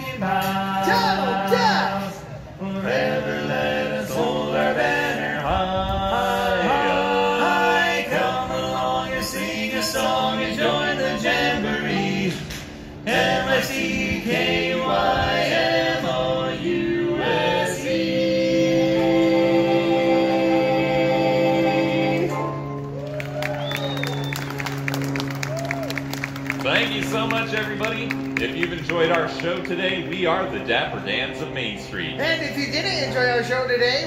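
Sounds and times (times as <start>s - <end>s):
barbershop quartet singing: 0.0s - 22.8s.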